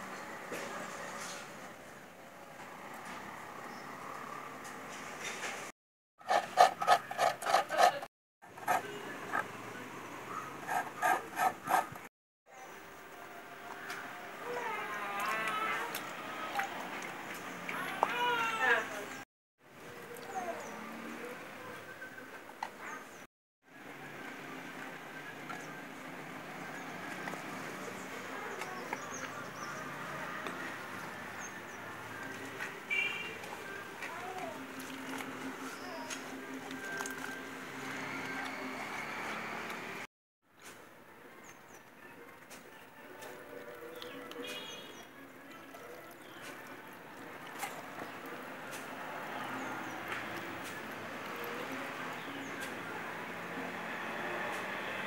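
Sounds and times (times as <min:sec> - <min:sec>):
hands kneading grated coconut: 0:06.2 - 0:08.9
wet coconut squelching: 0:32.1 - 0:39.2.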